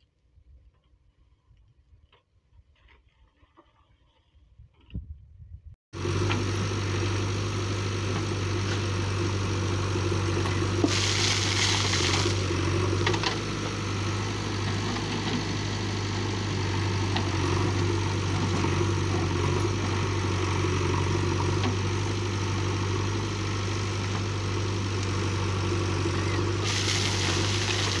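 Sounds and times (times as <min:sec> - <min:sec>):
diesel engine running: 0:06.0 - 0:28.0
hissing rush: 0:10.8 - 0:12.6, 0:26.6 - 0:28.0.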